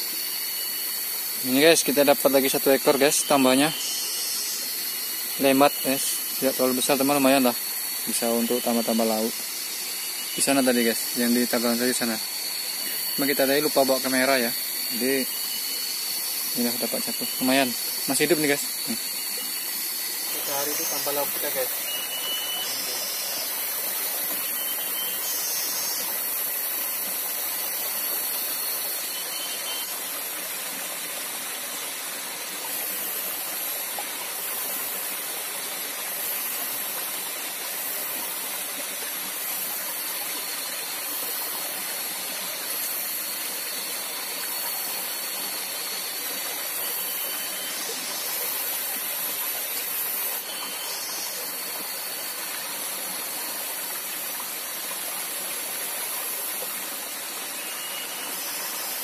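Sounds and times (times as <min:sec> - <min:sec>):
stream running over rocks: 0:00.0 - 0:59.0
short high chirps: 0:20.3 - 0:23.4.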